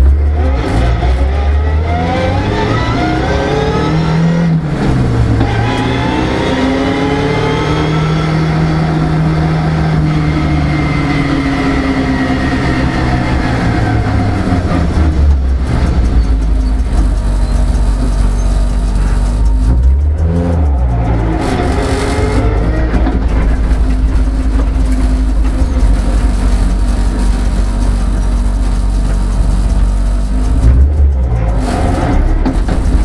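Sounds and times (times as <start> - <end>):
car engine from inside cabin: 0.0 - 33.0
road noise: 0.0 - 33.0.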